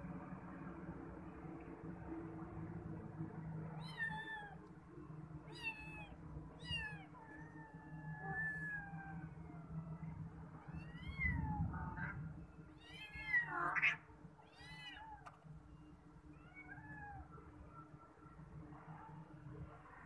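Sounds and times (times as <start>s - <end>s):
cats meowing: 3.7s - 4.7s, 5.5s - 10.0s, 10.6s - 12.0s, 12.7s - 15.4s, 16.4s - 17.3s.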